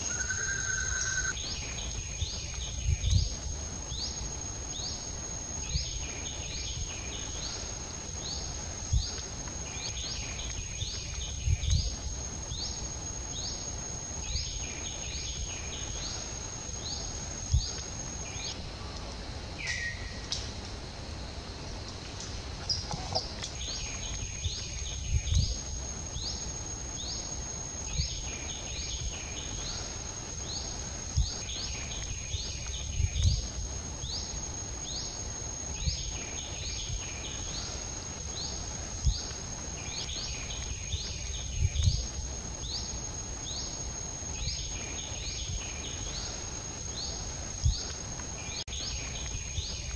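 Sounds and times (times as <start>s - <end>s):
short rising chirps: 0.0s - 1.4s
steady high-pitched whine: 0.0s - 49.9s.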